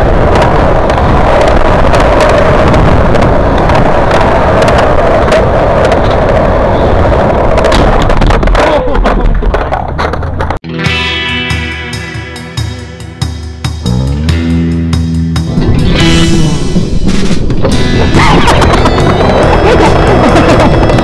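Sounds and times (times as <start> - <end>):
skateboard wheels rolling on concrete: 0.0 - 10.6, 15.9 - 21.0
skateboard knocks and scrapes: 7.2 - 10.6.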